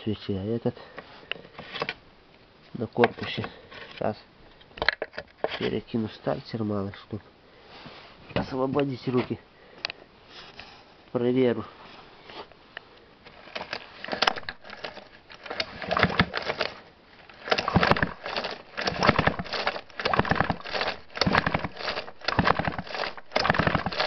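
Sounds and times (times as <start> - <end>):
chainsaw starter cord pulls: 13.3 - 24.0.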